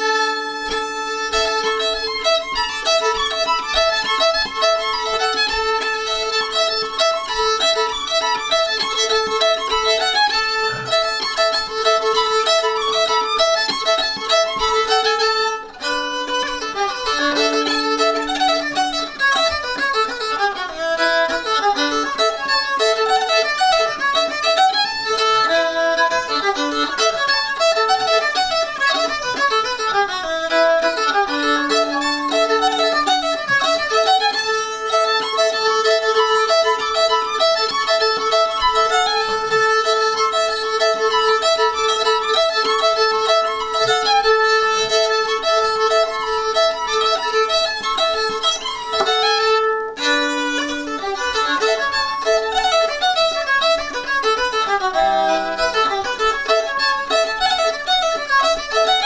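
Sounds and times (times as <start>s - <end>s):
fiddle playing a lively tune: 0.0s - 59.0s.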